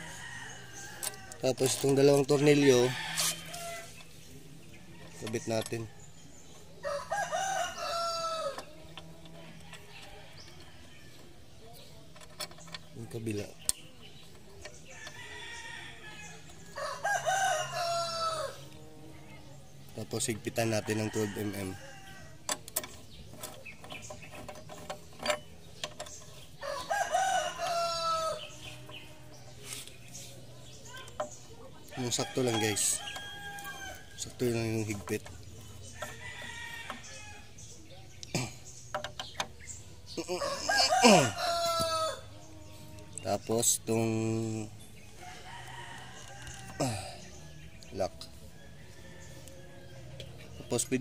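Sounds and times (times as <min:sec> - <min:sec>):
rooster crowing: 0:06.8 - 0:08.6, 0:16.8 - 0:18.7, 0:26.6 - 0:28.6, 0:40.2 - 0:42.3
socket wrench clicking on metal: 0:22.4 - 0:26.9.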